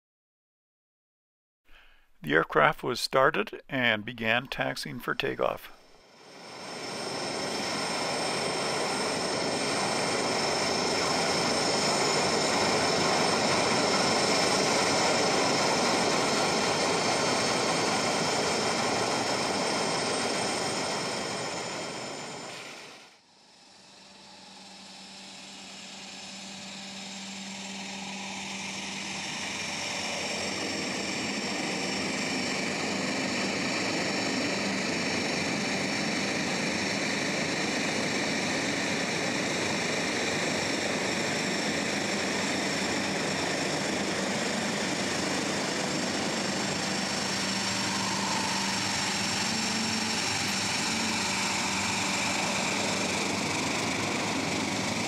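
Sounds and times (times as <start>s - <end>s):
high turbine whine: 4.5s - 55.0s
low propeller hum: 37.0s - 55.0s.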